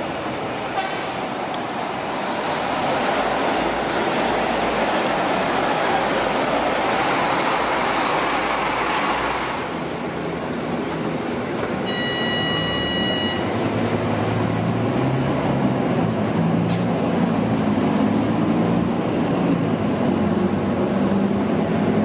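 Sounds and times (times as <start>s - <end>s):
bus engine and tyre rush: 0.0s - 22.0s
bus engine hum inside cabin: 0.0s - 22.0s
electronic beep: 11.9s - 13.5s.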